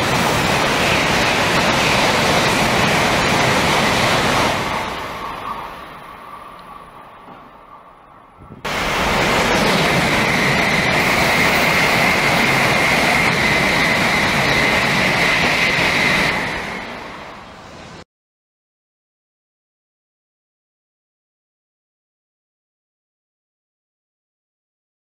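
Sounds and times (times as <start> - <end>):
high-speed train passing: 0.0 - 18.1.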